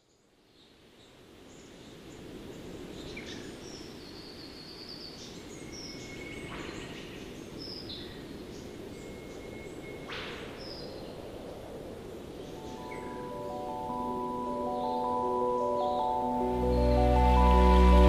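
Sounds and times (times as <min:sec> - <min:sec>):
steady low rush: 0:11.2 - 0:18.0
birds chirping and whistling: 0:12.4 - 0:18.0.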